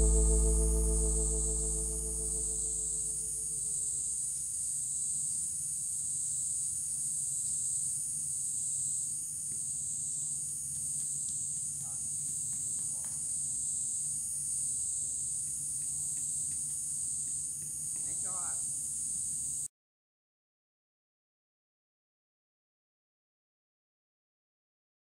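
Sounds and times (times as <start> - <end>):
faint low hum: 0.0 - 4.0.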